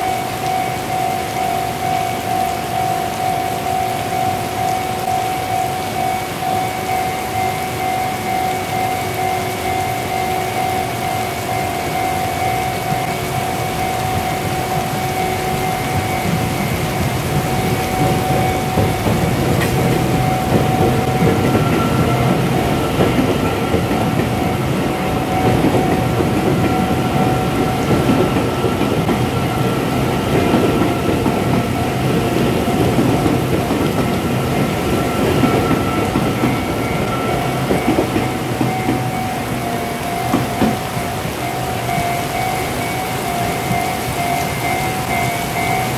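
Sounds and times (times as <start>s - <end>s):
crossing warning bell ringing: 0.0s - 45.9s
train wheels rumbling on rail: 0.0s - 45.9s
wheels clacking over rail joints: 11.4s - 45.9s.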